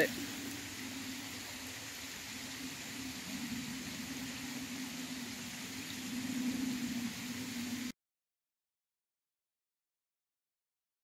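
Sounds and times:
background hiss: 0:00.0 - 0:07.9
low wavering hum: 0:00.1 - 0:07.9.

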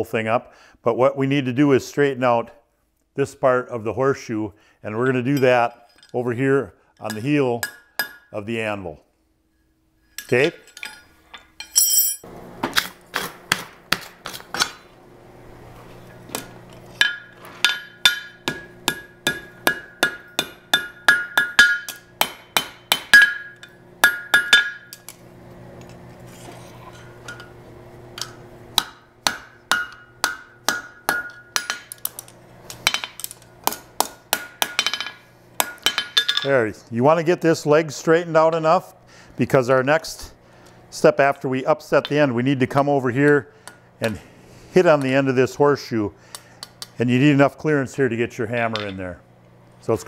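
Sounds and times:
hammer ringing on anvil: 0:07.1 - 0:08.3, 0:17.0 - 0:25.0, 0:28.8 - 0:31.9.

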